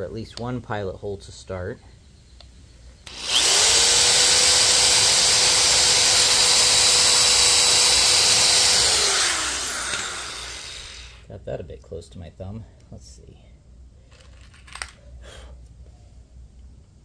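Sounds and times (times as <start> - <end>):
electric drill whining: 3.0 - 11.2.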